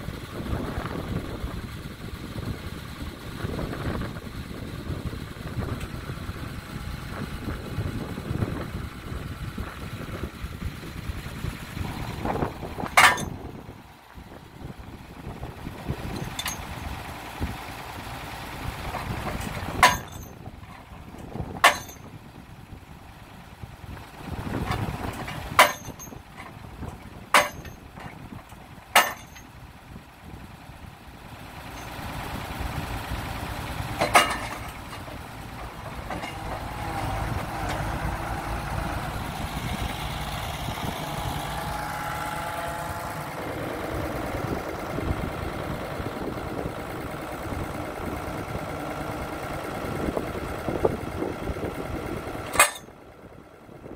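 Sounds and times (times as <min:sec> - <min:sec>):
diesel engine running: 0:00.0 - 0:53.9
post driver hammer striking post: 0:21.6 - 0:22.0, 0:25.6 - 0:26.1, 0:27.4 - 0:27.7, 0:29.0 - 0:29.4.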